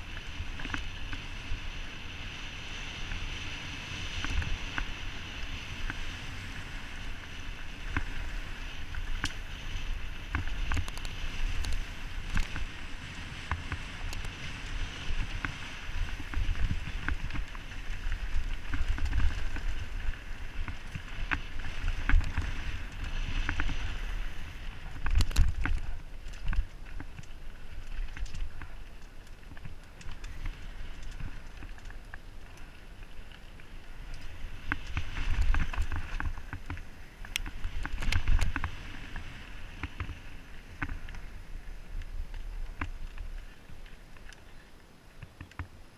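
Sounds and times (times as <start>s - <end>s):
bike clicks and rattles: 0.0s - 45.8s
wind rumbling on microphone: 0.0s - 45.9s
tyres crunching over gravel: 15.0s - 45.6s.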